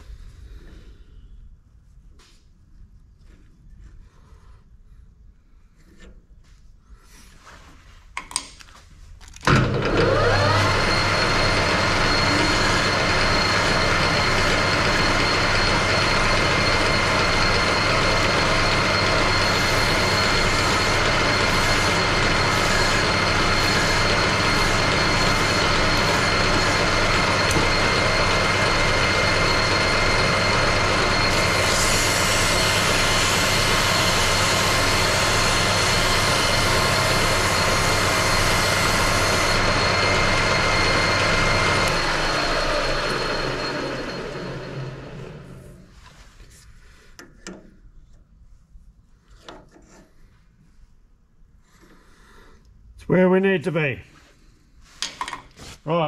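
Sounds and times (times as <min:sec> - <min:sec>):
metal lathe whine: 0:09.5 - 0:45.9
emery cloth polishing steel: 0:11.4 - 0:42.6.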